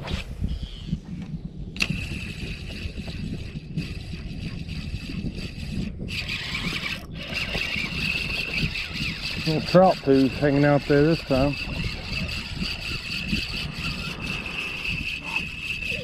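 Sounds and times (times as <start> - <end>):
fishing reel gears whirring: 1.7 - 16.0
reel click: 1.8 - 3.2.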